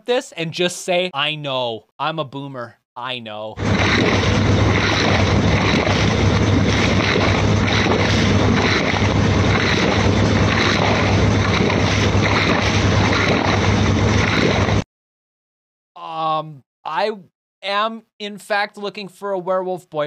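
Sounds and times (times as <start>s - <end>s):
constant low hum: 3.6s - 14.8s
wind buffeting microphone: 3.6s - 14.8s.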